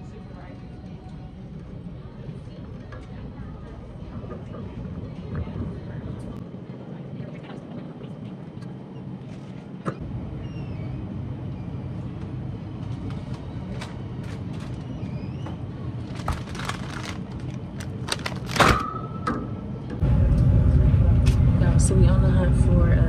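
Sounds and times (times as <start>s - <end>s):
faint squeaks: 10.4s - 11.8s, 14.7s - 15.8s
shopping cart rattling: 16.0s - 18.9s.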